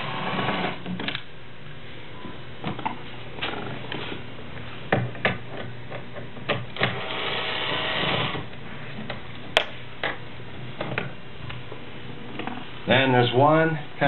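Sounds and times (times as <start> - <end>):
small electric motor whirring: 6.8 - 8.4.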